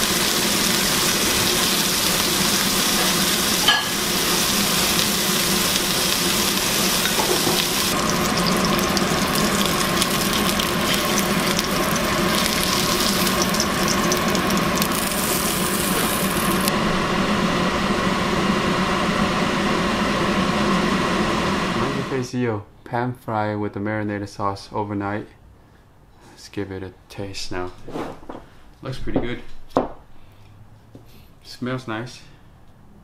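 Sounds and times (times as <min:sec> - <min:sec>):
fish sizzling in frying pan: 0:00.0 - 0:16.7
steady hum: 0:00.0 - 0:22.3.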